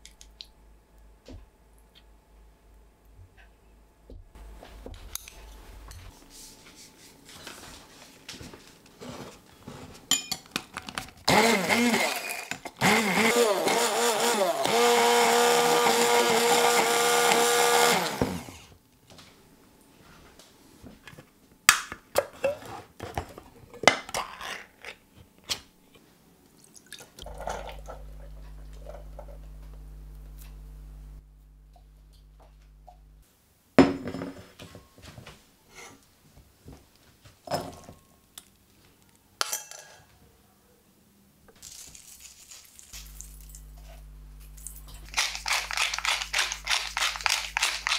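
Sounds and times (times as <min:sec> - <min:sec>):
stick blender running: 0:11.3 - 0:18.7
beans clinking into metal sieve: 0:41.6 - 0:43.6.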